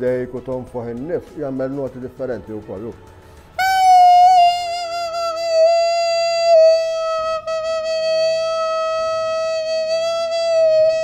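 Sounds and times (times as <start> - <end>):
reed pipe long held note: 3.6 - 11.0.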